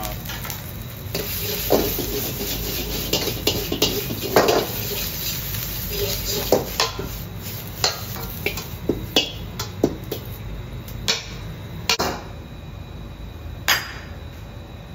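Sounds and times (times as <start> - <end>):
gas burner rumble: 0.0 - 13.6
ladle scraping iron wok: 1.1 - 10.4.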